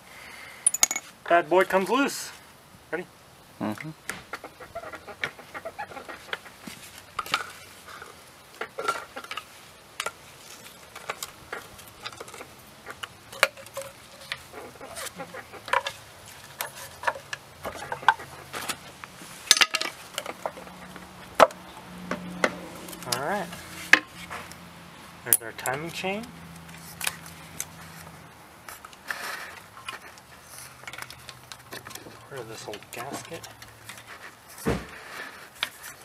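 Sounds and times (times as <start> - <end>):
metallic clicks and scrapes of tools: 8.8 - 18.8, 25.3 - 34.6.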